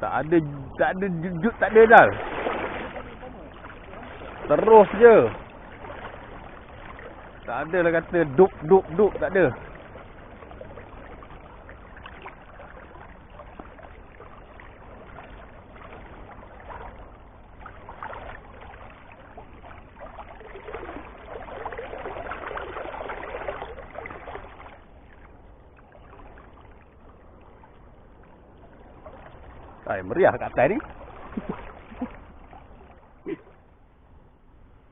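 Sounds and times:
river current lapping: 0.0s - 34.9s
fish splashing at surface: 2.1s - 7.4s.

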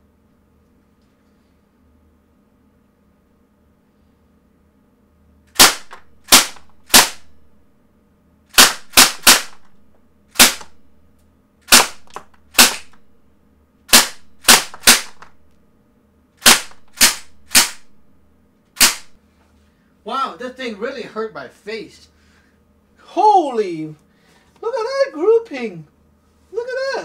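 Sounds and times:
bb gun shots: 5.5s - 7.4s, 8.5s - 9.7s, 10.3s - 10.8s, 11.6s - 13.0s, 13.9s - 15.4s, 16.4s - 18.0s, 18.8s - 19.2s.

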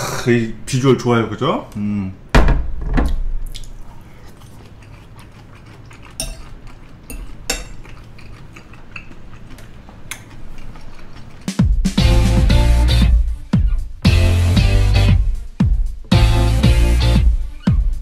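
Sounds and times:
soft chewing: 3.5s - 11.7s
fork clinking on ceramic bowl: 6.1s - 8.4s.

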